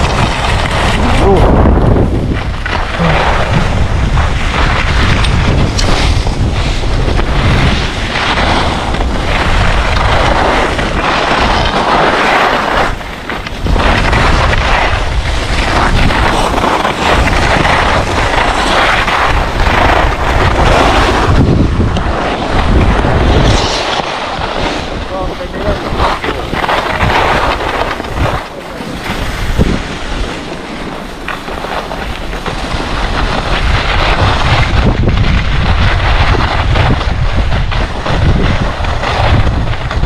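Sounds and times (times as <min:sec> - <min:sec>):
skis scraping on snow: 0:00.0 - 0:40.0
wind rushing over microphone: 0:00.0 - 0:40.0.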